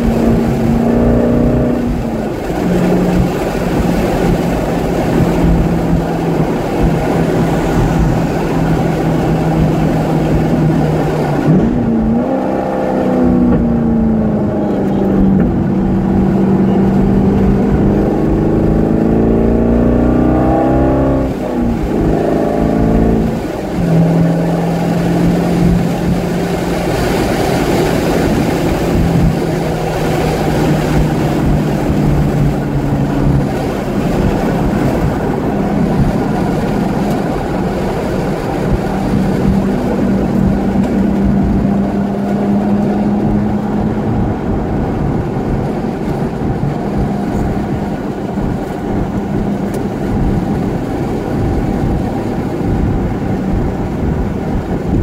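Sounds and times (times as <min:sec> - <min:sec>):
car engine at speed: 0:00.0 - 0:55.0
road noise: 0:00.0 - 0:55.0
wind noise: 0:00.0 - 0:55.0.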